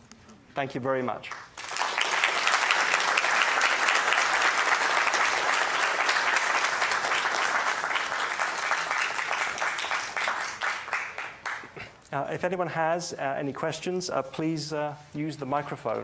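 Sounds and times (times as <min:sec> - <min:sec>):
audience applauding: 0:01.3 - 0:11.9.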